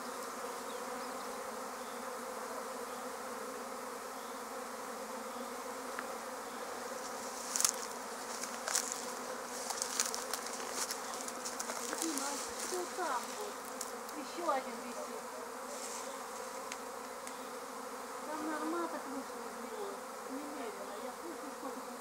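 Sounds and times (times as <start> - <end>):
bee swarm buzzing: 0.0 - 22.0
rustles and crackles: 6.9 - 17.4.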